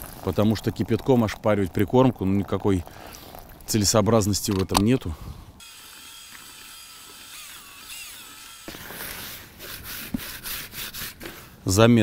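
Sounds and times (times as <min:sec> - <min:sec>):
groundbait mixed by hand crunching: 0:00.0 - 0:01.2.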